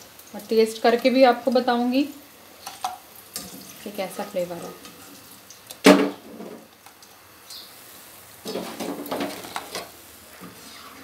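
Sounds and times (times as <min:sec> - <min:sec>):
oil sizzling: 0:00.0 - 0:11.0
metal spoon scraping a pan: 0:08.4 - 0:11.0.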